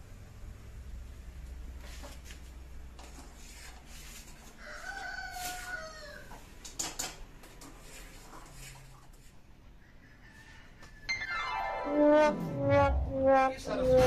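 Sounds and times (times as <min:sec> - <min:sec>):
rooster crowing: 0:04.4 - 0:06.4, 0:09.8 - 0:11.2.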